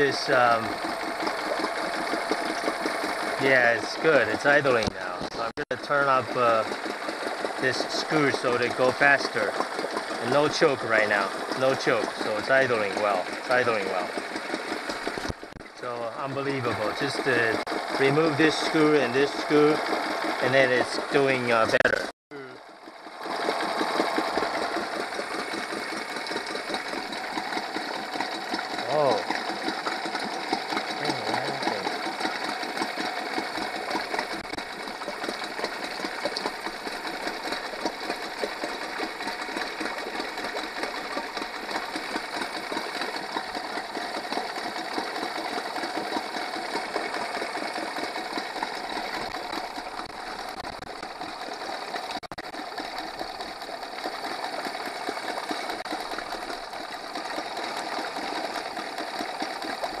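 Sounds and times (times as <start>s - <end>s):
outboard motor idling: 0.0s - 60.0s.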